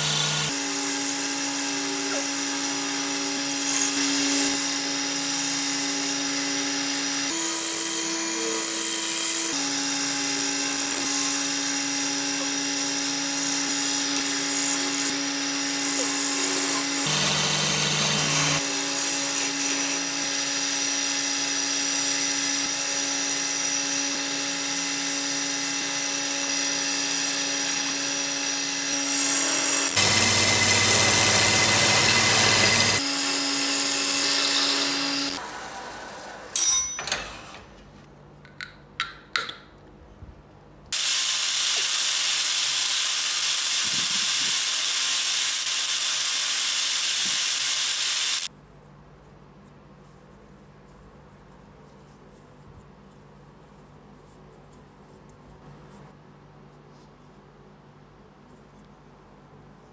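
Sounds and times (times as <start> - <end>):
wood lathe humming: 0.0 - 36.6
gouge cutting wood: 5.6 - 21.4, 24.0 - 35.4.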